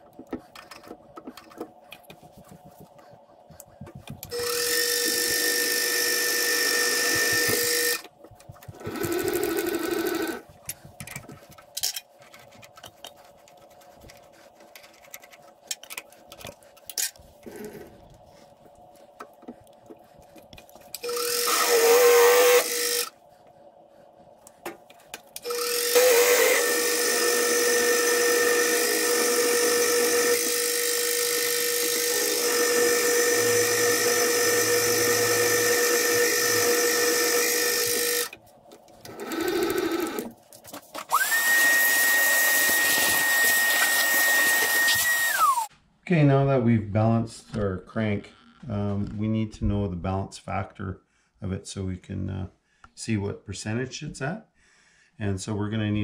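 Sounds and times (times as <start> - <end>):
milling machine motor whining: 4.1 - 8.1, 8.7 - 10.4, 20.9 - 23.2, 25.4 - 38.4, 39.0 - 40.3, 41.1 - 45.7
drill bit boring into steel: 4.3 - 8.0, 21.0 - 23.1, 25.4 - 38.4, 41.1 - 45.7.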